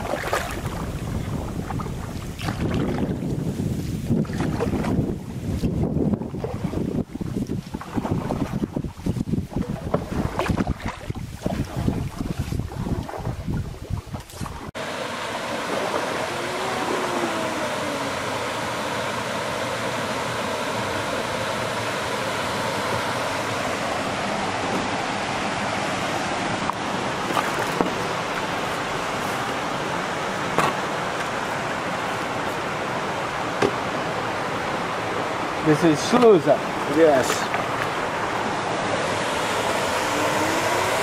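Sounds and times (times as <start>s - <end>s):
water rushing into lock chamber: 14.7s - 23.4s.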